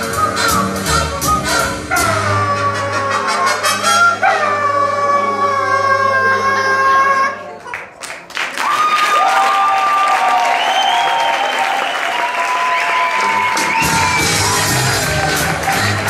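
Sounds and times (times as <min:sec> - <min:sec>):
audience applause: 0:07.6 - 0:16.0.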